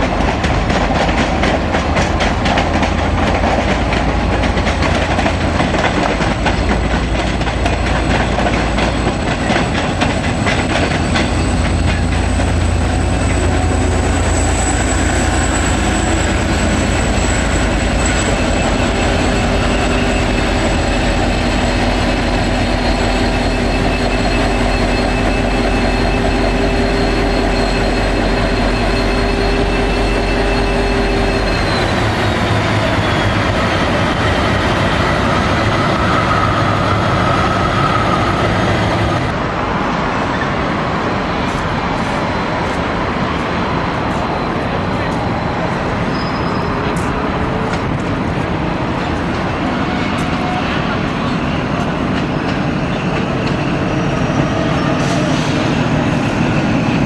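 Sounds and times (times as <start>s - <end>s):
diesel locomotive engine rumble: 0.0s - 57.0s
thin wheel squeal: 10.8s - 34.2s, 46.1s - 47.0s.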